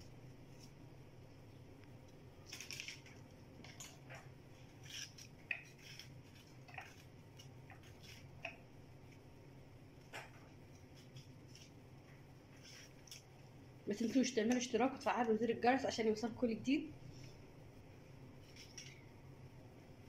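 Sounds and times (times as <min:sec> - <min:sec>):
low steady hum: 0:00.0 - 0:20.0
knife cutting tomatoes: 0:03.7 - 0:08.6.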